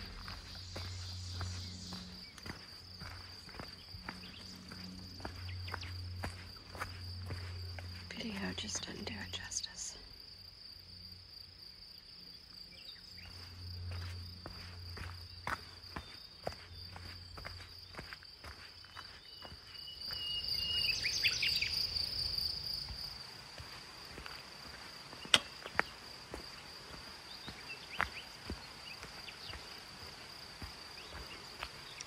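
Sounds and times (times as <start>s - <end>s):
footsteps on dirt trail: 0.0s - 9.4s, 12.5s - 32.0s
insects droning: 0.0s - 32.0s
sharp snap: 25.3s - 25.5s.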